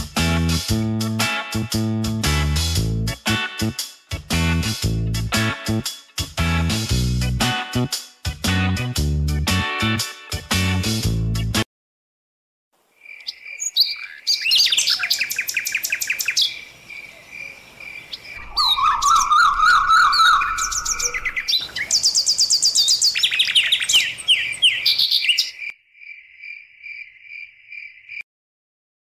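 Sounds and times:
birds chirping and trilling: 13.0s - 28.2s.

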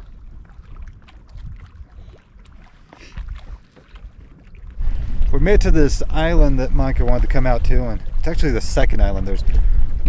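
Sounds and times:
lake waves lapping on rocks: 0.0s - 10.0s
wind rumbling on microphone: 0.0s - 10.0s.

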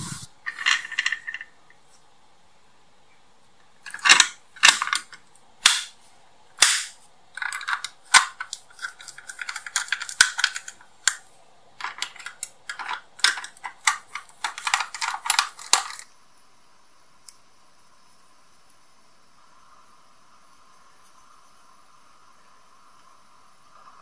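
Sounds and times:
plastic model parts clicking: 3.8s - 5.9s, 6.6s - 16.1s.

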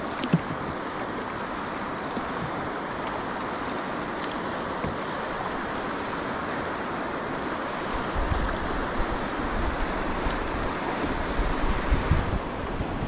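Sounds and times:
river rapids rushing: 0.0s - 13.0s
wind buffeting microphone: 7.8s - 13.0s.

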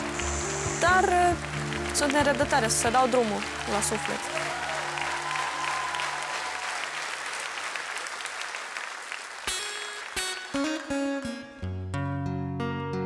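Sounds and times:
studio audience applause: 0.0s - 11.3s
acoustic guitar plucking notes: 9.6s - 13.0s.

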